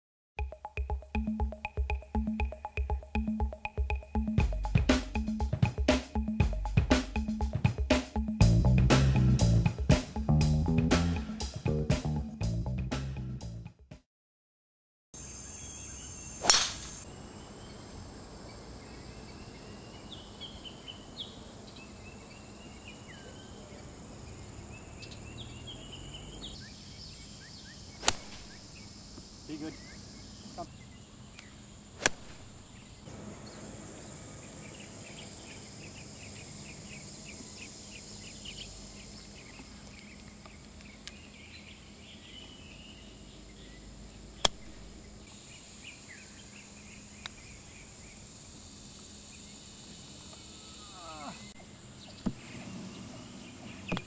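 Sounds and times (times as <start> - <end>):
insects chirping: 0.5 - 6.6, 15.2 - 54.0
birds chirping: 0.5 - 8.4, 18.5 - 48.3, 49.2 - 54.0
golf club striking ball: 16.4 - 17.0, 28.0 - 28.6, 32.0 - 32.6.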